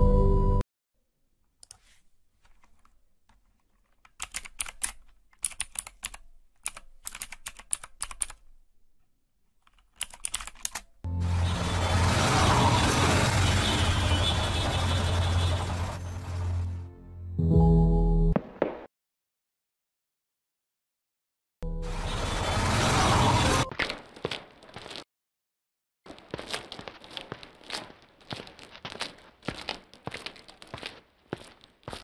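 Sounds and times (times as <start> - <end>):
keyboard typing: 3.8 - 8.4, 9.7 - 11.0.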